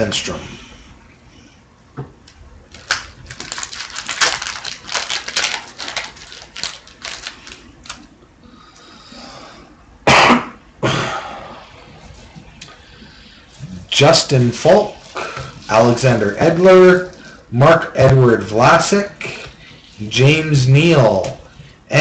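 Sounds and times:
card wrappers crinkling: 2.7s - 8.1s
cards rustling: 2.7s - 8.1s
person coughing: 10.0s - 11.4s.

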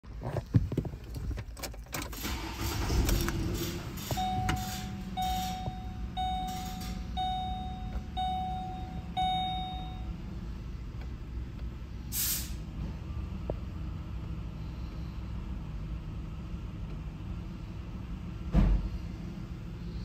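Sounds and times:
dashboard warning chime: 4.1s - 10.4s.

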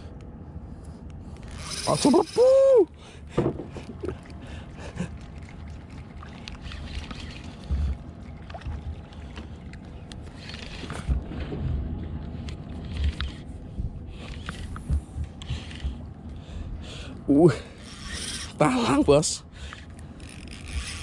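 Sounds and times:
steady low rumble: 0.0s - 17.9s
fishing reel clicks: 1.4s - 2.5s, 17.8s - 18.6s, 19.8s - 21.0s.

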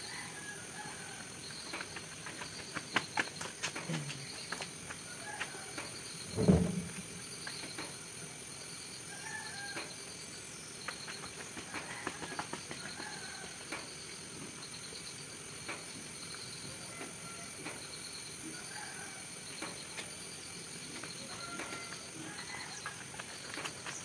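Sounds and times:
pulsing insect chirp: 0.0s - 24.0s
low thud: 6.3s - 7.2s.

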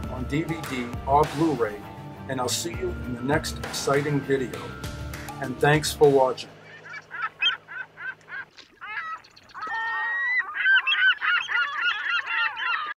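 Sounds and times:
flock of birds calling: 6.5s - 13.0s.

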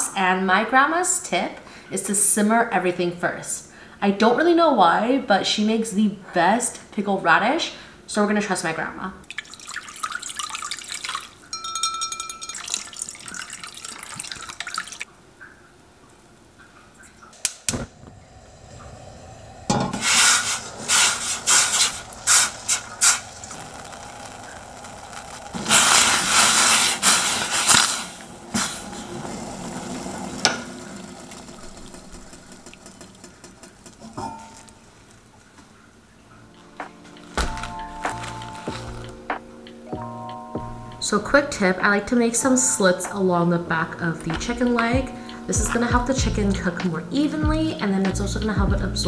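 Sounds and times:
liquid simmering and bubbling: 9.2s - 11.5s, 12.5s - 39.2s
water pouring into saucepan: 9.2s - 11.5s, 12.2s - 15.1s, 19.6s - 35.4s.

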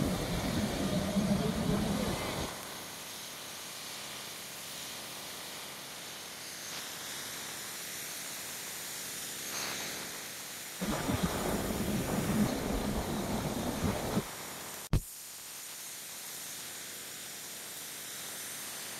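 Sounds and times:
outdoor sound: 0.0s - 3.1s, 10.8s - 15.1s
faint steady hiss: 0.0s - 18.9s.

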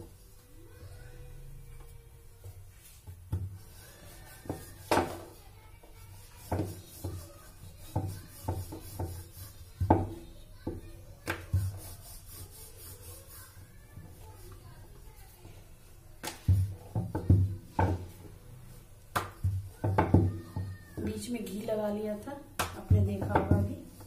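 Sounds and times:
rolling pin knocking on wooden board: 22.6s - 23.7s.

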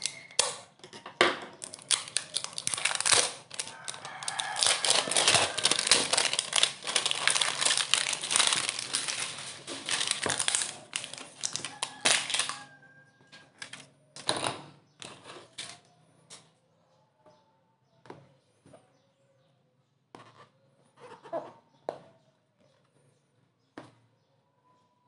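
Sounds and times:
plastic wrap crinkling: 0.0s - 0.6s, 1.6s - 12.8s.

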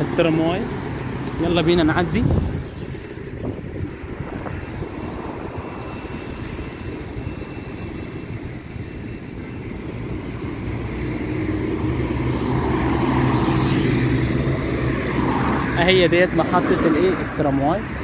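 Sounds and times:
road traffic: 0.0s - 18.0s
wind rumbling on microphone: 0.8s - 18.0s
car engine passing close: 10.4s - 17.8s.

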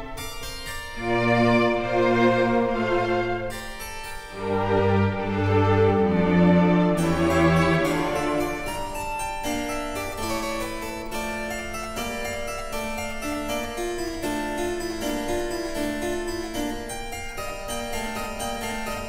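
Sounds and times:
keyboard instrumental music: 0.0s - 19.0s.

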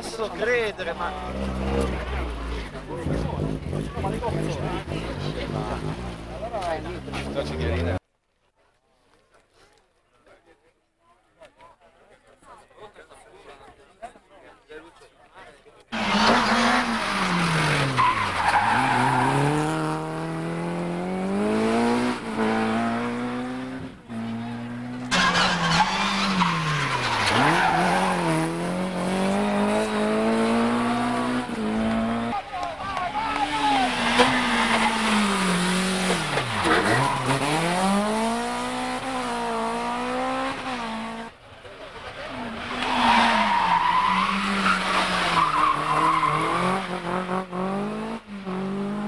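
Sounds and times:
rally car engine revving: 0.8s - 8.0s, 16.0s - 41.4s, 42.0s - 49.0s
tyres squealing: 16.0s - 19.7s, 25.1s - 28.4s, 31.6s - 38.0s.

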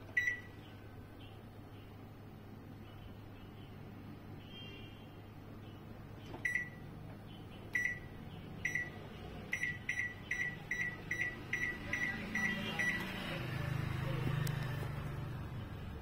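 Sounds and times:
microwave keypad beeps: 0.0s - 0.6s, 6.4s - 6.9s, 7.7s - 13.2s
low steady hum: 0.0s - 16.0s.

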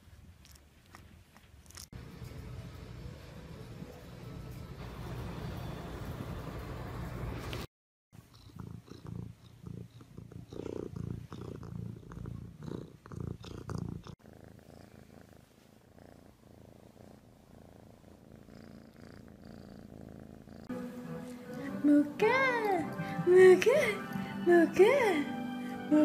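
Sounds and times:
cats purring: 8.2s - 20.7s.

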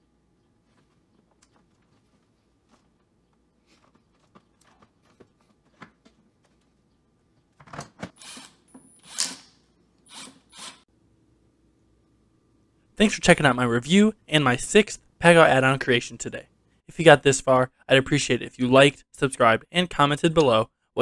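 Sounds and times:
cordless driver driving screws: 8.2s - 9.5s.

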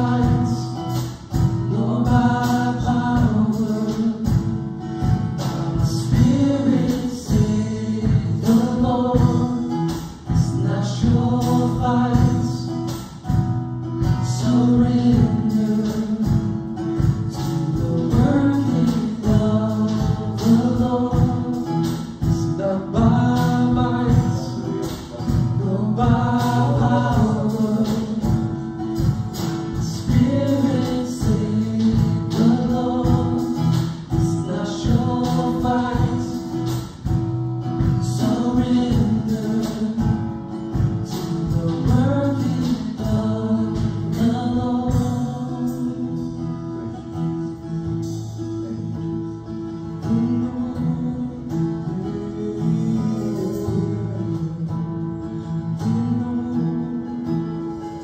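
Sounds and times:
person singing: 0.0s - 4.6s, 5.4s - 13.2s, 14.0s - 28.8s, 29.6s - 37.1s, 37.8s - 46.6s, 49.8s - 57.5s
strummed acoustic guitar: 0.0s - 58.0s.

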